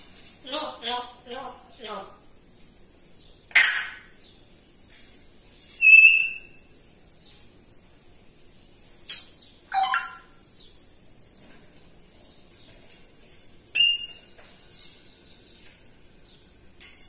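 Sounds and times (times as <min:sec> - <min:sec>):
parrot squawking: 0:03.5 - 0:04.1, 0:05.8 - 0:06.5, 0:09.7 - 0:10.3, 0:13.8 - 0:14.1
parrot whistling: 0:05.8 - 0:06.6, 0:09.7 - 0:10.3, 0:13.8 - 0:14.2.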